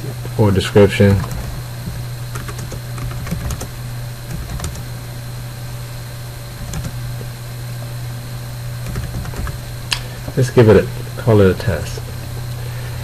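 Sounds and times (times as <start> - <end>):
low electrical hum: 0.0 - 13.0
keyboard keystrokes clicking: 1.1 - 3.7, 4.3 - 4.9, 6.6 - 7.1, 8.8 - 9.6.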